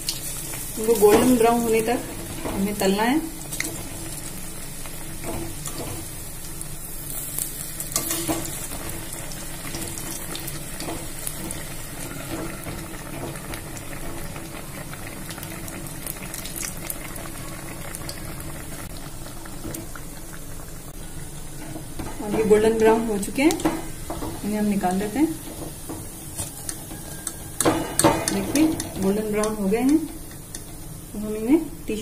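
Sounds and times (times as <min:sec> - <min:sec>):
food deep-frying in oil: 0:00.0 - 0:32.0
metal spoon scraping pan: 0:25.4 - 0:30.8.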